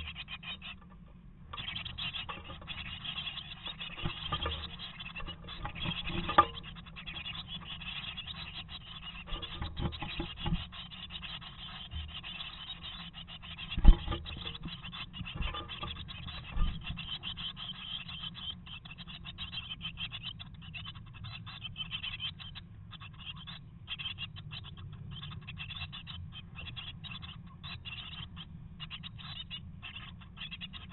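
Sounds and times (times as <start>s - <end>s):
birds scratching and rustling: 0.0s - 30.9s.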